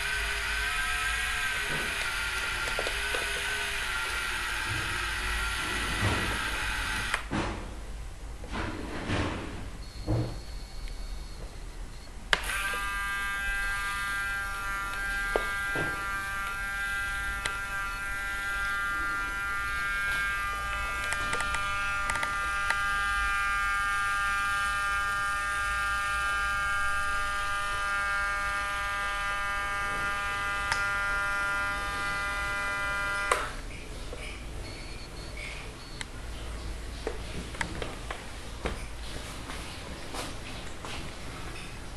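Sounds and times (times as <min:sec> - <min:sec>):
small electric motor whine: 0:00.0 - 0:07.3, 0:12.3 - 0:33.6.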